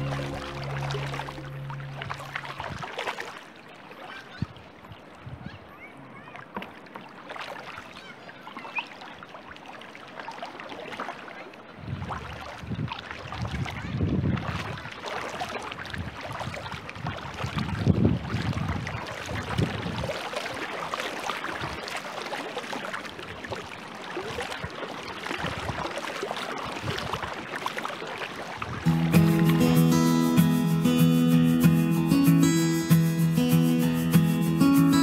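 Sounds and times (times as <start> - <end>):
low rumble: 0.0 - 2.8
water washing along hull: 0.0 - 4.4, 9.6 - 29.6
paddle splashes and drips: 0.0 - 5.3, 6.1 - 29.6.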